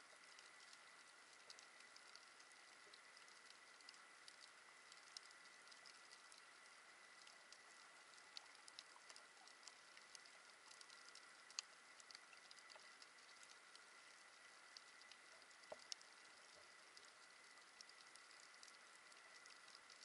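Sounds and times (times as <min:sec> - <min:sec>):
low steady hiss: 0:00.0 - 0:20.0.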